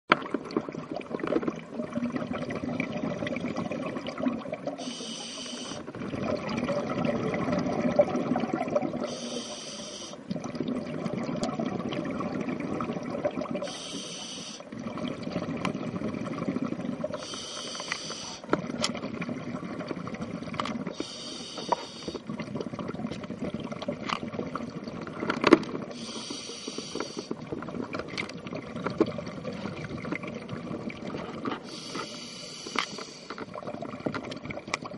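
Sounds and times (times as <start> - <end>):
rumbling exhaled bubbles: 0.1 - 4.9, 5.8 - 9.1, 10.2 - 13.7, 14.7 - 17.3, 18.5 - 21.0, 22.1 - 26.2, 27.2 - 31.7, 33.4 - 34.9
regulator inhalation hiss: 4.8 - 5.9, 9.1 - 10.2, 13.6 - 14.7, 17.2 - 18.5, 20.9 - 22.2, 25.9 - 27.3, 31.7 - 33.4.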